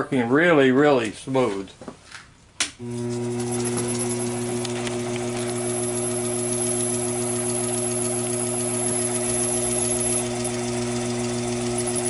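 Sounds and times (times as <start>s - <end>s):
drill bit boring into brass: 2.8s - 12.0s
lathe humming: 2.8s - 12.0s.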